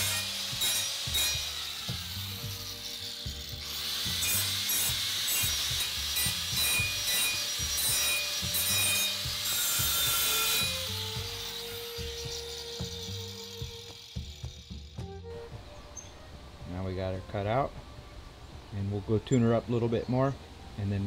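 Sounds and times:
angle grinder cutting metal: 0.0s - 15.2s.

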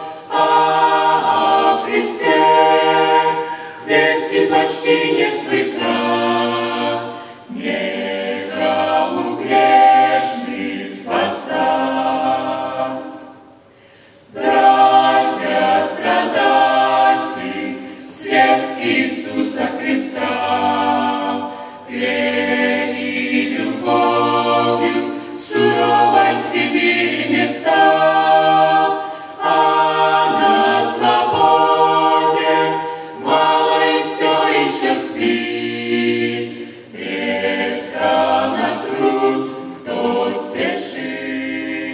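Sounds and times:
mixed choir singing a cappella: 0.0s - 41.9s.

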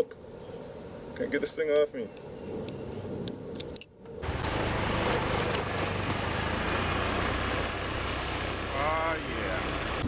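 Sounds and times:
wind and road noise: 0.0s - 10.0s
helmet strap clicks: 2.7s - 3.9s
scooter engine hum: 4.2s - 10.0s.

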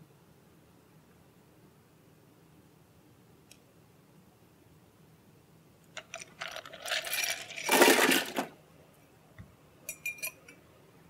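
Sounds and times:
bar tools and ice clattering: 6.0s - 8.5s
glass clinking: 9.8s - 10.6s.

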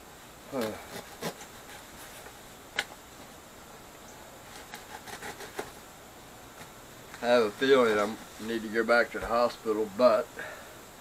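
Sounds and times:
knife scraping packing tape: 0.6s - 2.2s, 4.6s - 5.8s.

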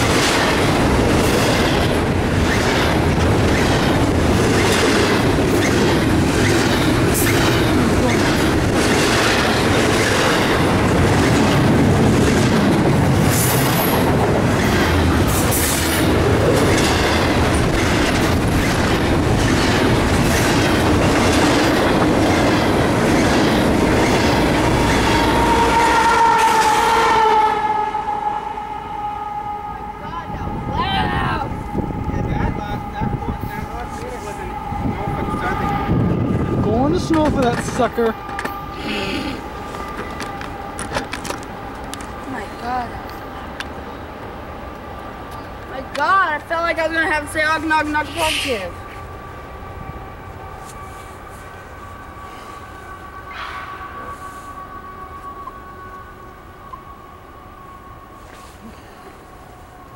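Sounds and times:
clickety-clack over rail joints: 0.0s - 26.9s, 33.1s - 38.9s, 39.6s - 47.4s
train wheels rolling on rail: 0.0s - 28.4s, 31.4s - 59.9s
distant horn: 24.4s - 42.7s, 46.1s - 59.9s.

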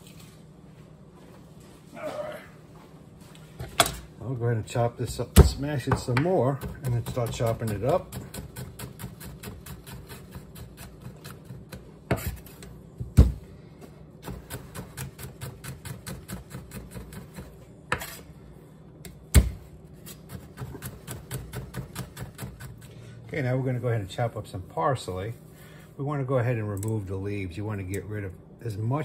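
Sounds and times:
knife chopping on wooden board: 20.3s - 22.8s.

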